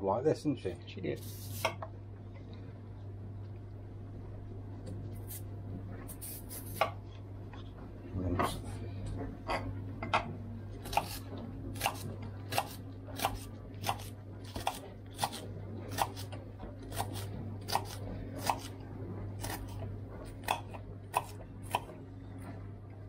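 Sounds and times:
knife chopping on wooden board: 10.8 - 18.7, 19.4 - 21.9.

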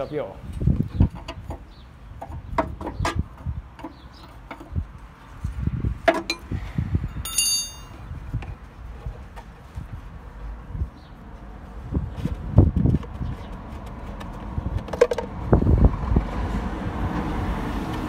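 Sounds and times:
wind rumbling on microphone: 0.0 - 18.0
short high ringing tone: 7.2 - 7.9.

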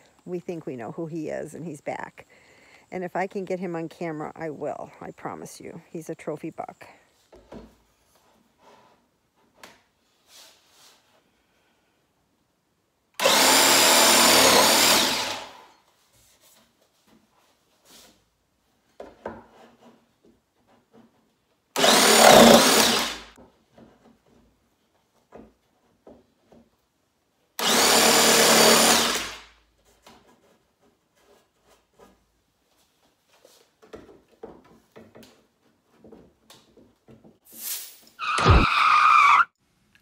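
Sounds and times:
jigsaw sawing through wood: 13.2 - 15.7, 21.8 - 23.4, 27.6 - 29.5.

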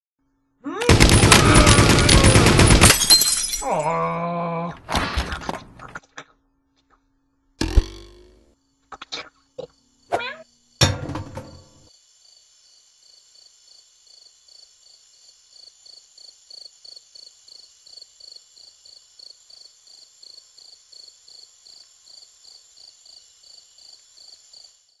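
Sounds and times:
cricket chirping: 8.5 - 25.0
steady high hiss: 11.7 - 25.0.

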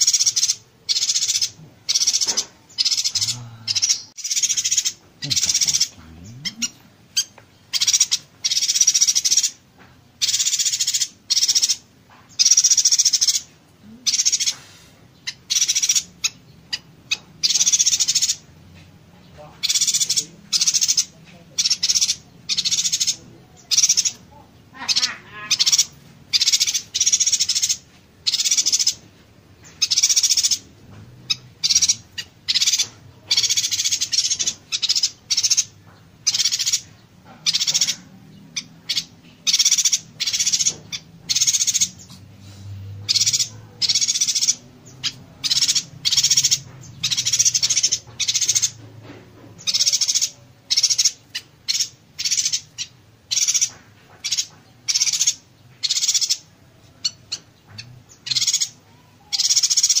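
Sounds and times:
bird buzzy crackling song: 19.6 - 60.0.

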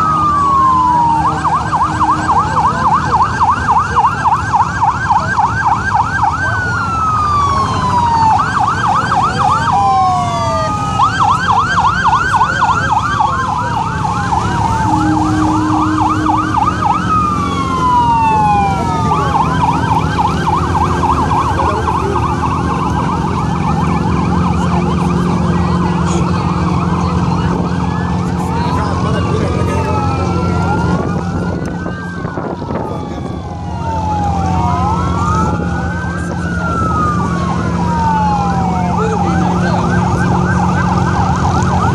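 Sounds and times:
electronic emergency sirens: 0.0 - 41.9
low engine hum: 0.0 - 41.9.

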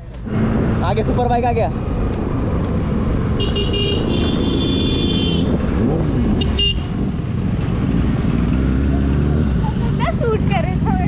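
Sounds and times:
vehicle horn: 3.4 - 5.6, 6.4 - 6.9.

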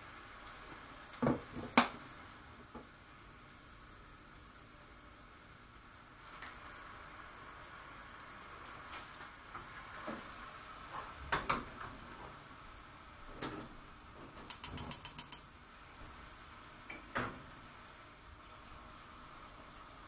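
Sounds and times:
gas hob spark igniter clicking: 14.4 - 15.5.

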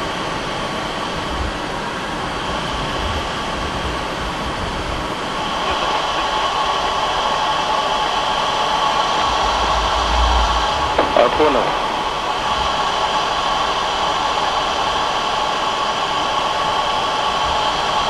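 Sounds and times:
jet engine and airflow rushing: 0.0 - 18.0
faint even whine: 3.8 - 14.7.

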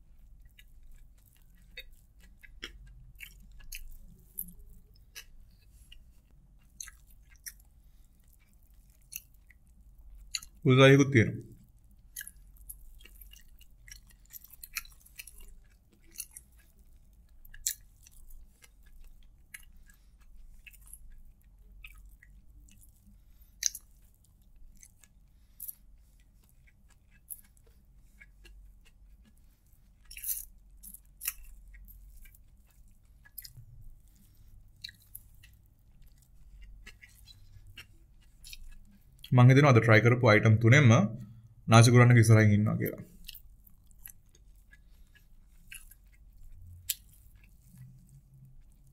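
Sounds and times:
close chewing: 0.0 - 10.6, 11.4 - 39.3, 42.8 - 48.9
wet mouth clicks and smacks: 0.5 - 6.0, 10.2 - 10.6, 43.2 - 48.0.

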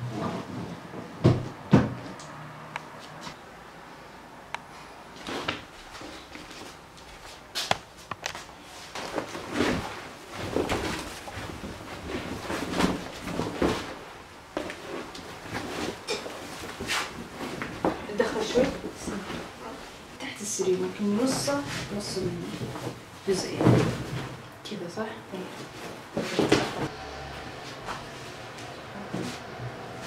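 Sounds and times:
rug rustling and scraping on tiles: 5.1 - 24.5.

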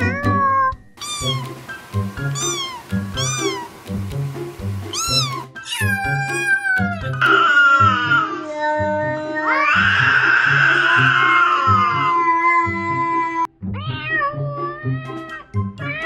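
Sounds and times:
cat meowing: 0.0 - 1.6, 2.2 - 3.8, 4.9 - 16.0
background music with beat: 1.0 - 5.6.

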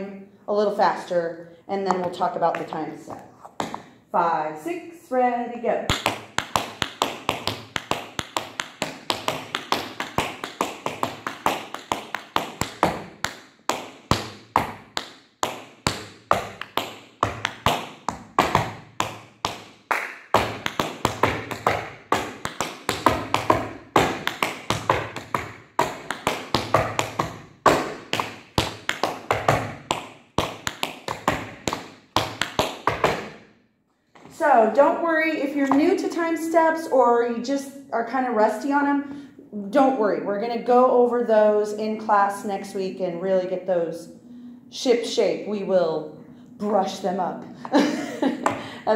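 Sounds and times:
tap shoes on wooden floor: 1.8 - 3.9, 5.9 - 33.4, 34.1 - 34.4, 35.6 - 36.0.

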